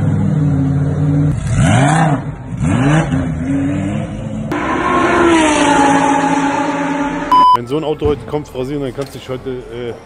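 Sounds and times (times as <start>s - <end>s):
race car engine revving: 0.9s - 7.4s.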